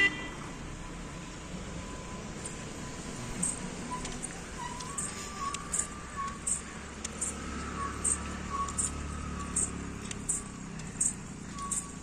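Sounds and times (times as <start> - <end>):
vehicle engine rumble: 0.0 - 12.0
faint high ticks: 3.4 - 12.0.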